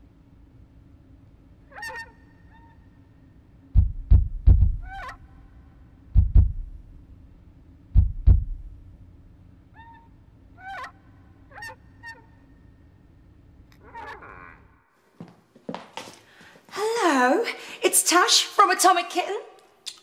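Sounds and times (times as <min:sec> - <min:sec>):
deep booming thuds: 0:03.7 - 0:05.0, 0:06.1 - 0:06.9, 0:07.9 - 0:08.8.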